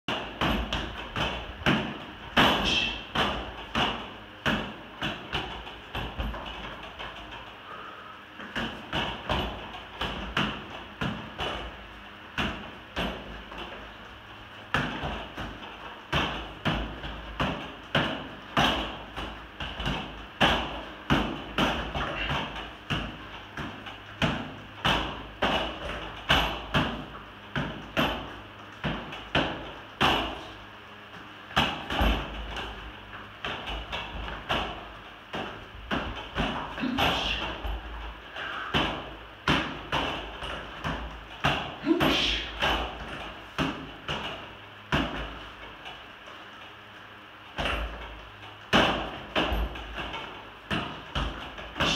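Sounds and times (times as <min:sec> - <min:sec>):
strikes knocking on training apparatus: 0:00.1 - 0:07.4, 0:08.5 - 0:11.8, 0:14.7 - 0:30.6, 0:31.6 - 0:32.8, 0:33.4 - 0:45.8, 0:47.6 - 0:51.9.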